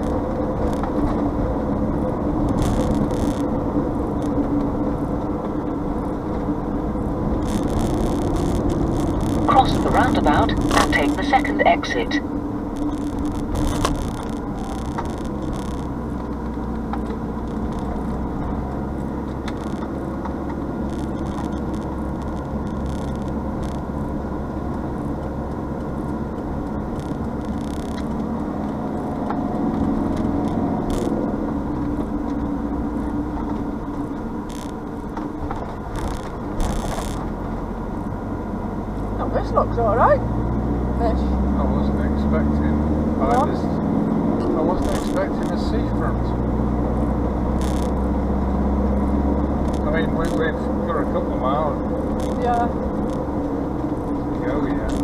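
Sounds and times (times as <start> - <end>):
car engine and tyre drone: 0.0 - 55.0
light rattles and clicks: 12.7 - 37.5, 44.4 - 46.2, 49.6 - 55.0.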